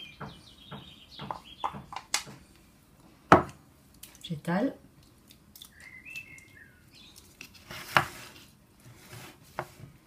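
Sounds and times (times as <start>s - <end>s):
high chirps: 5.7s - 7.2s.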